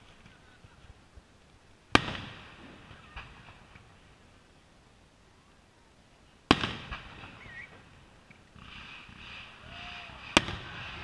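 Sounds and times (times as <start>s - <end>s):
steady rushing noise: 0.0s - 11.0s
small firework pops: 1.9s - 4.0s, 6.5s - 11.0s
firework shell burst: 6.5s - 11.0s.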